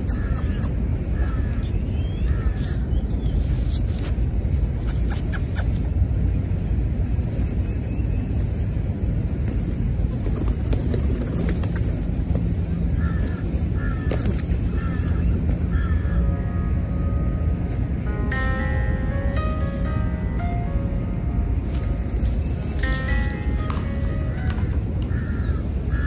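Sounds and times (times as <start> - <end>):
steady low rumble: 0.0 - 26.0
crows cawing: 1.2 - 1.6, 12.9 - 16.4, 25.0 - 26.0.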